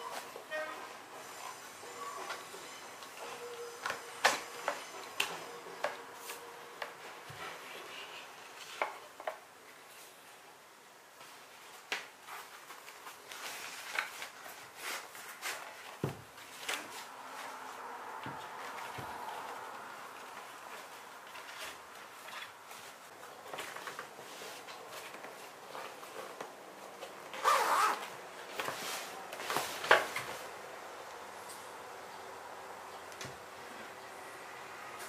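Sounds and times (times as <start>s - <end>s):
fabric bag handling: 12.3s - 30.0s.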